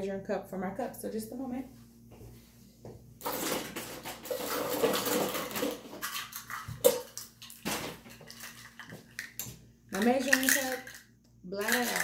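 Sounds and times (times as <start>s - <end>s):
kitchenware clattering: 3.2s - 11.0s, 11.6s - 12.0s.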